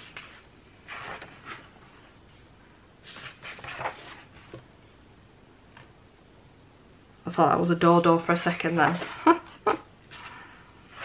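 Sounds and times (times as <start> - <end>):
paper pages turning and rustling: 0.0 - 2.1, 3.0 - 4.6.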